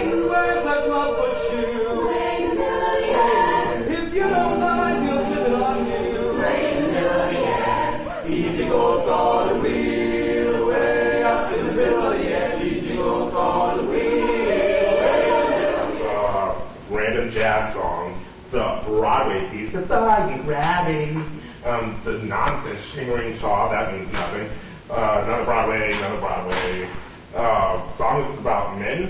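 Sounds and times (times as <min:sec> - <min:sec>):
mixed choir singing in harmony: 0:00.0 - 0:16.6.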